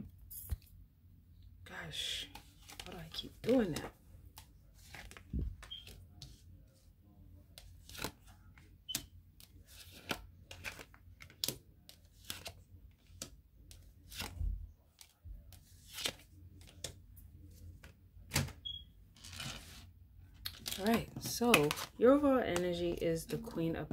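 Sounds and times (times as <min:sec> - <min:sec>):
cards shuffling and snapping: 0:02.3 - 0:06.0, 0:07.6 - 0:14.4, 0:15.0 - 0:17.0.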